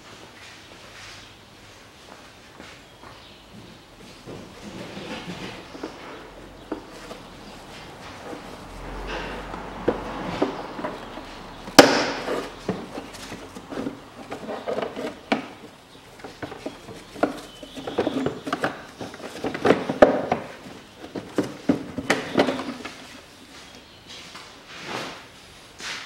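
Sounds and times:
plastic parts clacking and scraping: 4.6 - 23.1.

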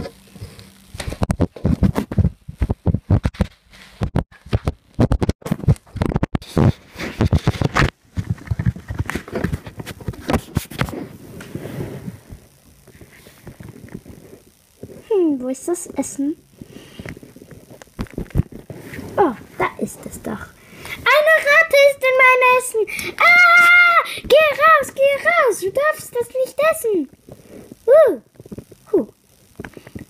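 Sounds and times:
microphone handling noise: 0.0 - 15.1, 16.6 - 20.2.

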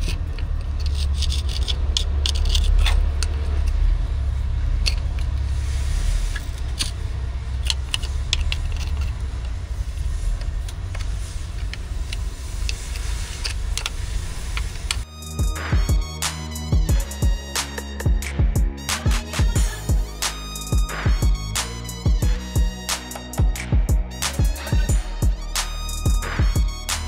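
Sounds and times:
screwdriver scraping dirt off metal: 0.0 - 3.3
steady low rumble: 0.0 - 17.5, 19.4 - 27.0
music: 15.0 - 27.0.

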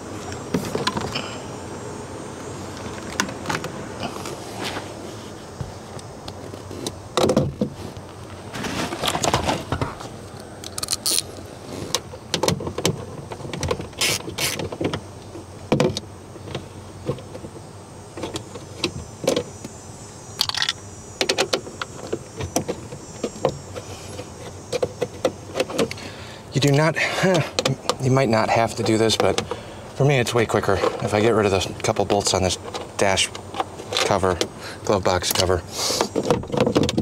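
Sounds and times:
scraping rustle: 2.5 - 19.6
plastic panels clicking and rattling: 11.9 - 19.6, 20.4 - 26.0, 26.6 - 29.6, 30.2 - 37.0.

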